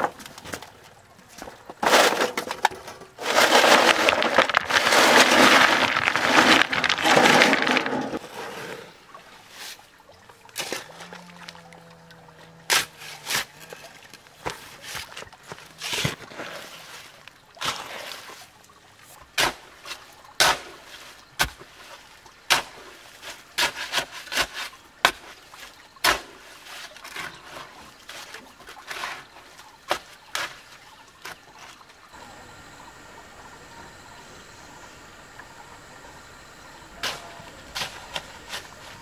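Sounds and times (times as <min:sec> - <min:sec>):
shovel scraping wet mortar: 0:01.8 - 0:08.9, 0:12.7 - 0:18.4, 0:22.5 - 0:31.8, 0:37.0 - 0:39.0.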